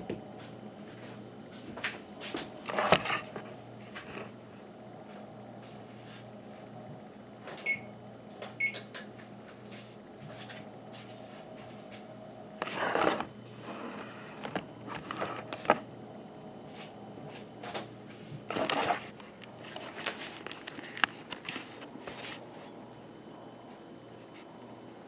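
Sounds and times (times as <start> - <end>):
low steady room hum: 0.0 - 25.0.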